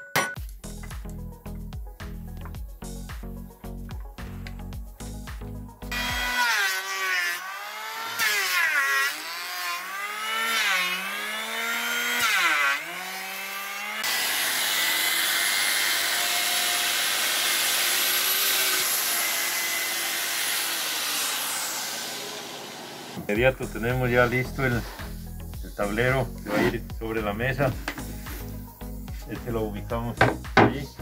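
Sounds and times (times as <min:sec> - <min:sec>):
electric planer shaving wood: 0:05.8 - 0:23.4
angle grinder sanding wood: 0:05.8 - 0:29.5.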